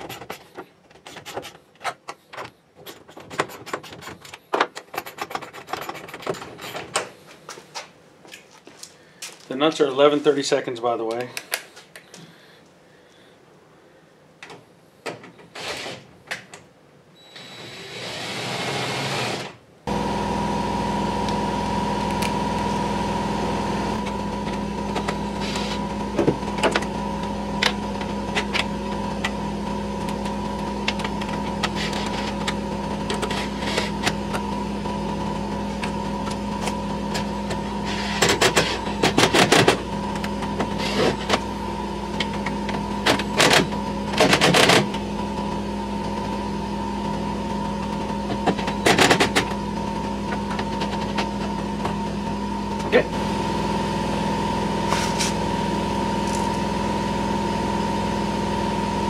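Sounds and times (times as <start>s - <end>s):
steady machine hum: 16.8s - 59.0s.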